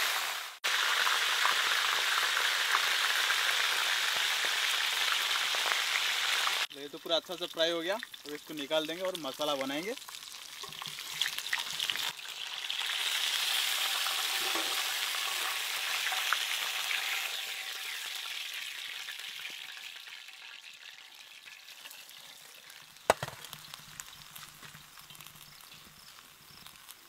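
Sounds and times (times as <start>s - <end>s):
fish sizzling in hot oil: 0.0s - 27.0s
sharp knock: 23.1s - 23.4s.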